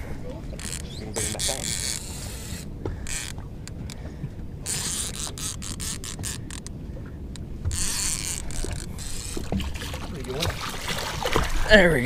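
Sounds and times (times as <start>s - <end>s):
fishing reel clicking: 0.6s - 3.4s, 4.7s - 6.7s, 7.3s - 9.5s.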